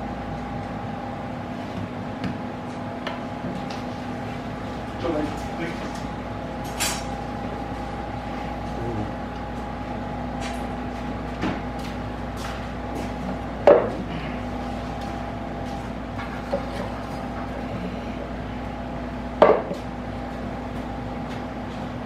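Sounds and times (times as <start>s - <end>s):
steady low hum: 0.0s - 22.0s
knocks on wooden board: 19.4s - 19.8s.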